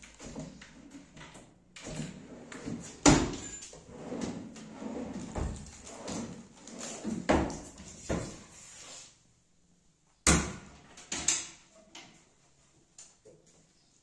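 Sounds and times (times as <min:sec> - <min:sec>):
drawers and doors banging shut: 0:01.8 - 0:04.4.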